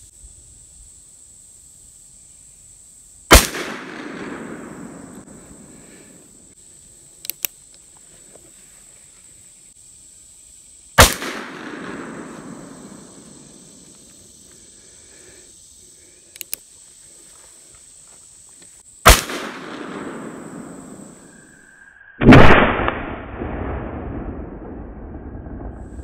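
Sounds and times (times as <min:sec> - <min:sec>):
insects buzzing: 0:00.0 - 0:22.2
revolver gunshots echoing: 0:03.3 - 0:05.8, 0:11.0 - 0:13.4, 0:19.1 - 0:21.3, 0:22.2 - 0:24.7
faint clicks: 0:07.2 - 0:08.0, 0:16.3 - 0:16.7.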